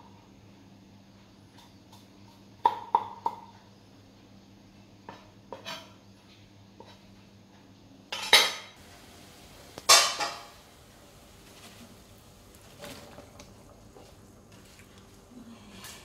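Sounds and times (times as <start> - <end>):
metal cookware clattering: 8.1 - 8.8, 9.8 - 10.7.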